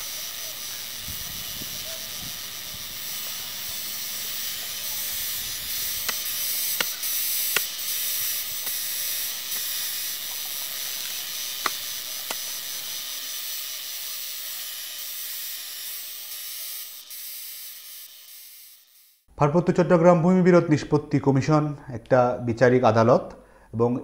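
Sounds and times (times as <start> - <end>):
outdoor ambience hiss: 0.0 - 24.0
digging tool striking earth: 5.9 - 8.0, 11.1 - 12.5.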